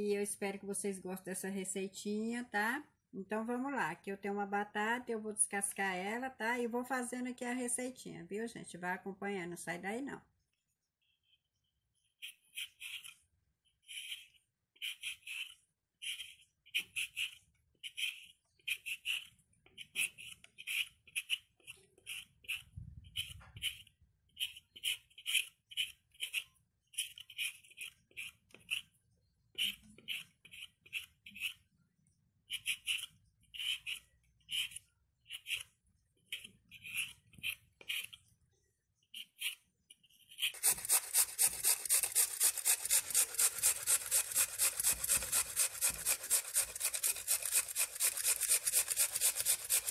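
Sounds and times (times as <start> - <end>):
peeler scraping potato: 12.0 - 31.7, 32.5 - 38.3, 39.1 - 49.9
potato rasping on box grater: 12.2 - 28.9, 29.6 - 31.6, 32.5 - 35.7, 36.3 - 38.2, 40.2 - 49.9.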